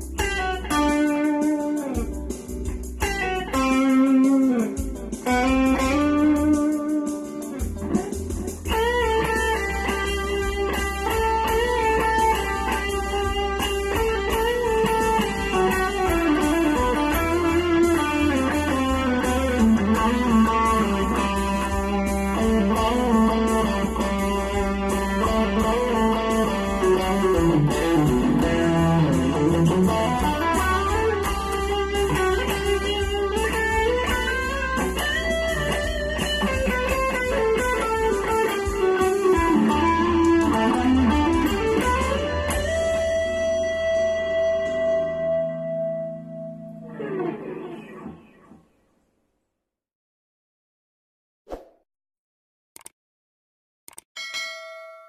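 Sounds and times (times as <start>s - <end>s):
backing track: 0.0s - 48.1s
electric guitar lead lines: 0.0s - 48.8s
bass line: 4.8s - 6.8s, 7.6s - 45.2s.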